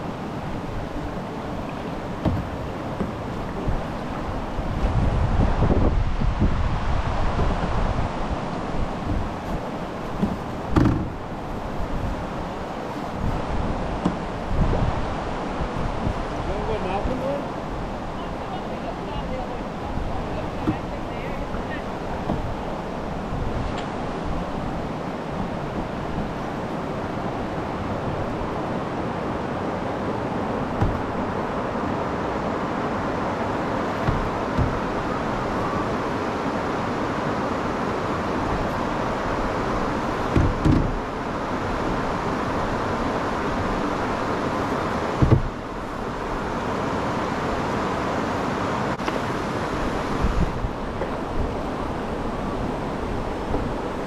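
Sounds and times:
wind on microphone: 0.0 - 47.8, 48.9 - 54.0
water moving along hull: 0.0 - 54.0
short dull thumps: 2.2 - 3.8, 9.1 - 11.2, 14.0 - 14.8, 22.2 - 22.7, 30.7 - 31.3, 34.0 - 35.0, 40.3 - 41.0, 45.2 - 45.6.

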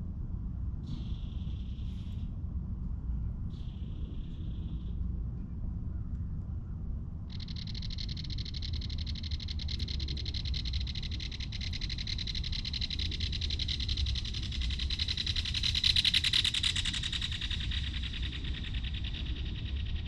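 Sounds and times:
kingfisher rattle call: 7.3 - 19.7.

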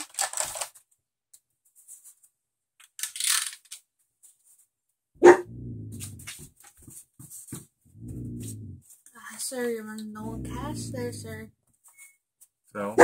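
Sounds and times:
dog barking: 5.2 - 5.6
dog growling: 5.2 - 6.5, 7.9 - 8.9, 10.2 - 11.5.

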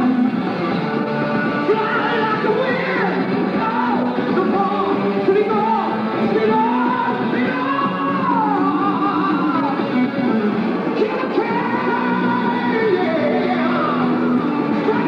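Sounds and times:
rock song with lead vocal: 0.0 - 15.0.

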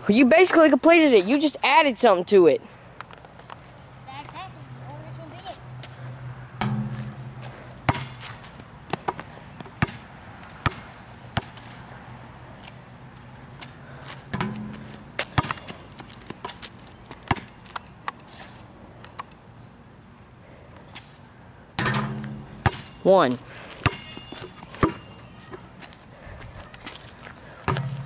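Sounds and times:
basketball bouncing on concrete: 6.6 - 10.0, 10.6 - 11.6, 14.2 - 16.1, 17.2 - 17.5, 21.8 - 25.6, 27.6 - 28.0.

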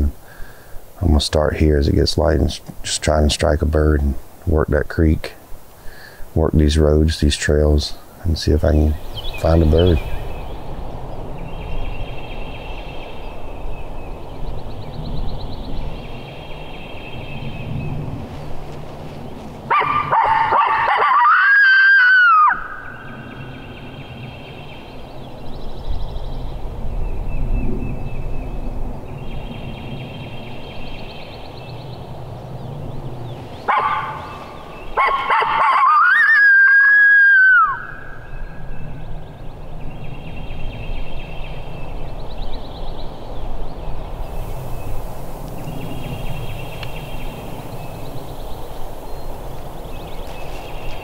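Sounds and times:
low wind rumble: 0.0 - 51.0
coyote howler call: 19.7 - 23.8, 33.7 - 38.5.

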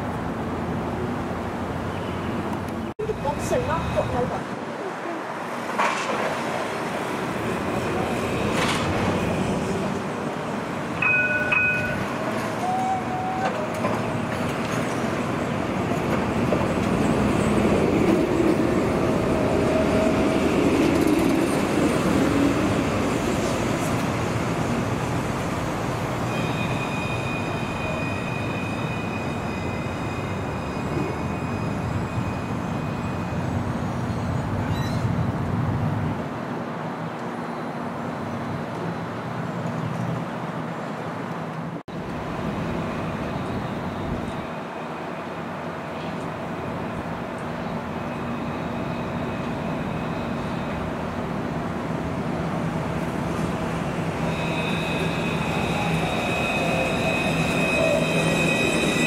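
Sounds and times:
tram rumbling on rails: 0.0 - 59.0
high-pitched whine: 53.8 - 59.0.

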